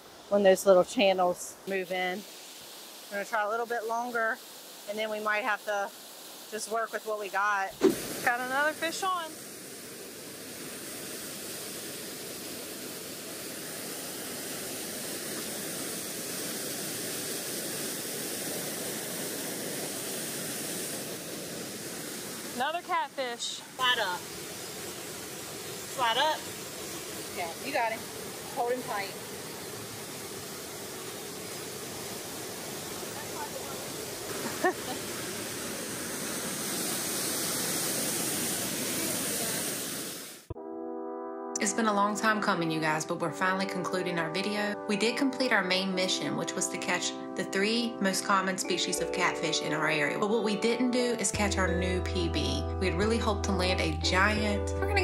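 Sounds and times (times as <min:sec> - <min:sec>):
water rushing over dam: 0:01.5 - 0:40.5.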